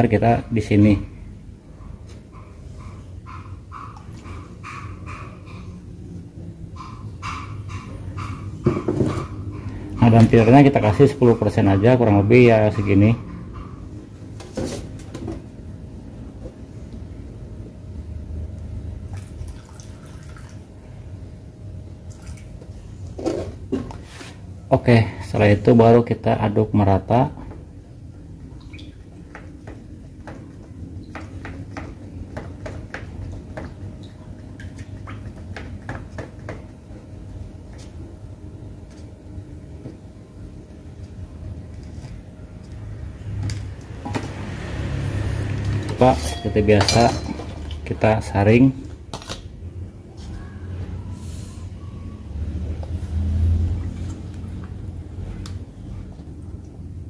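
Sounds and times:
liquid pouring through strainer: 19.2s - 20.6s.

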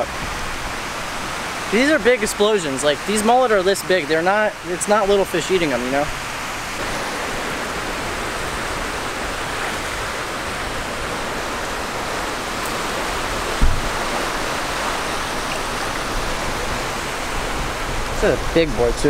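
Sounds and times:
surf washing onto beach: 0.0s - 19.0s
low bump: 13.6s - 14.1s.

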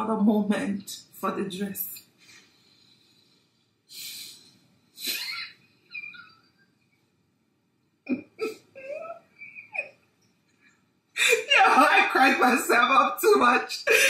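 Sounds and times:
woman murmuring: 8.1s - 9.9s.

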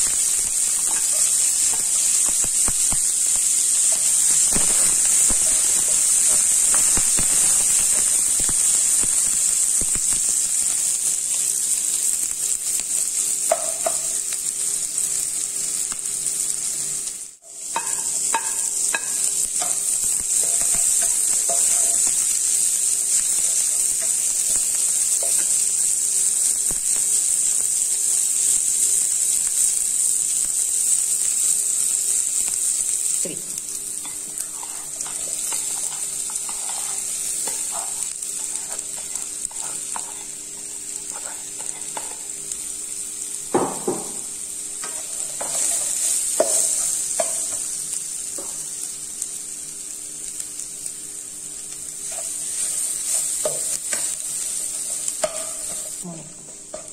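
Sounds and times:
food sizzling in a wok: 0.0s - 56.9s
spatula scraping pan: 34.0s - 42.2s, 44.8s - 47.6s
knocks on pan: 43.5s - 44.2s.

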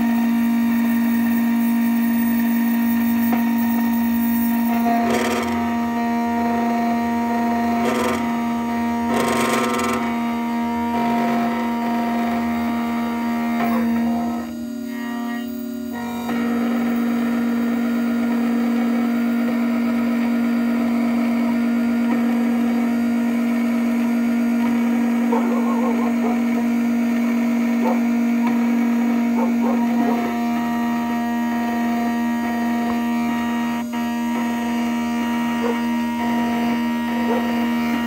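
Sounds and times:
cutter milling a key blank: 0.0s - 38.0s
key-cutting machine humming: 0.0s - 38.0s.

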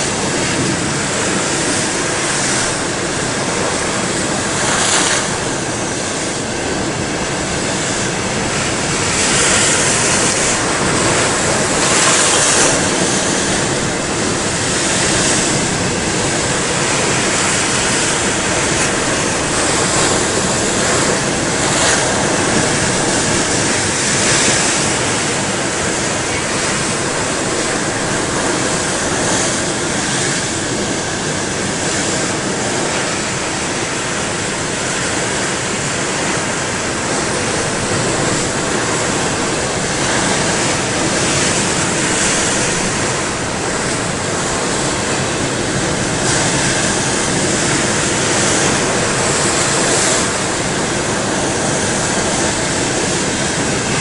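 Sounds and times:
waves crashing against rocks: 0.0s - 54.0s.

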